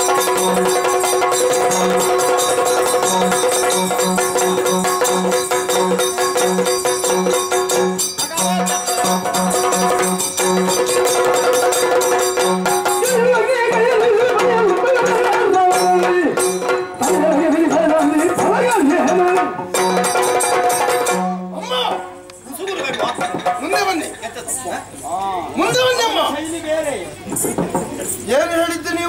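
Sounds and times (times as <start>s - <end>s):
small hand cymbals: 0.0s - 14.4s.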